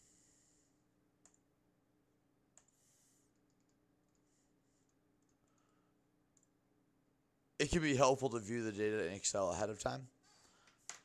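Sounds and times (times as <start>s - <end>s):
computer mouse clicks: 1.2s - 1.4s, 2.5s - 5.7s, 6.3s - 6.6s.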